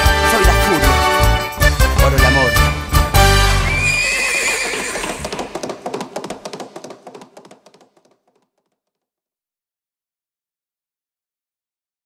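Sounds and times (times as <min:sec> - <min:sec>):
hoofbeats: 0:00.4 - 0:08.4
horse whinnying: 0:03.4 - 0:05.9.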